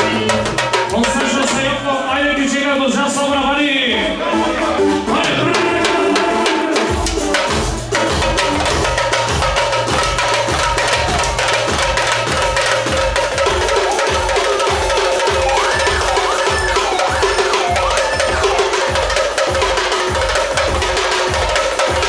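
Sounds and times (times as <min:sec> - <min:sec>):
large drum beating steady rhythm: 0:00.0 - 0:22.0
clarinet melody: 0:13.3 - 0:19.8.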